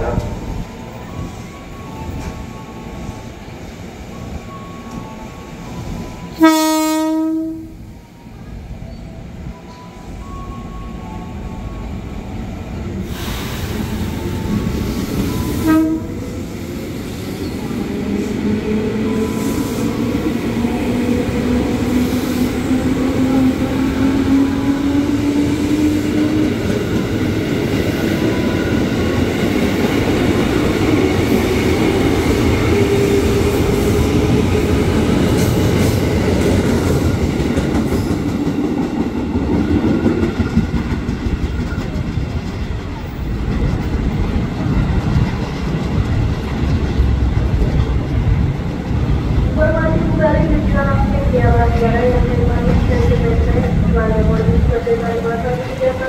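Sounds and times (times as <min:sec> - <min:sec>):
electric train horn: 0:06.3 - 0:07.8, 0:15.4 - 0:16.3
wheel and rail noise: 0:25.9 - 0:56.0.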